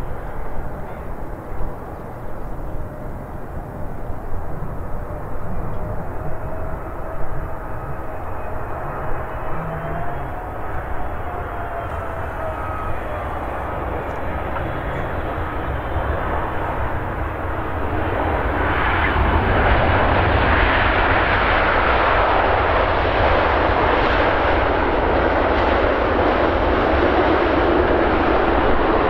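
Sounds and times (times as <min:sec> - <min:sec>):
low rumble: 0:00.0 - 0:21.0
jet engines roaring: 0:00.0 - 0:29.0.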